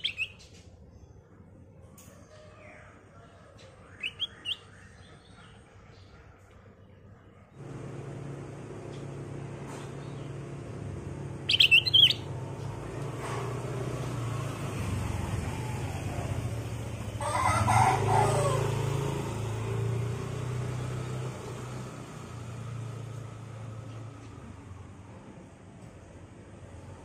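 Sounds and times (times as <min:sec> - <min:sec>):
steady low hum: 0:07.1 - 0:14.2
bird high call: 0:11.5 - 0:12.3.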